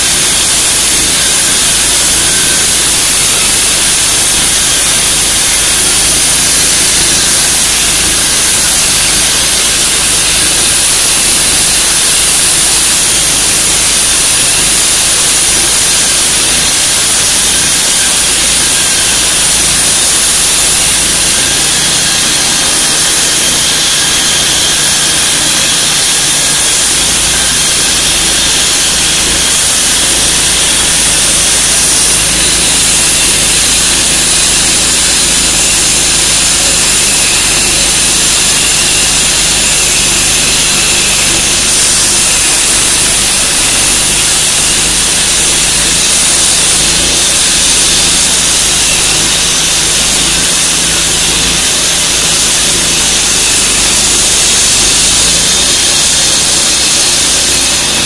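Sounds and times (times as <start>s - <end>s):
saw blade grinding concrete: 0.0s - 58.0s
saw engine drone: 0.0s - 58.0s.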